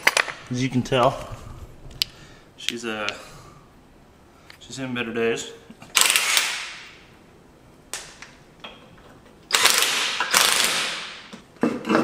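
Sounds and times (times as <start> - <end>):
impact wrench rattling: 9.5 - 11.3.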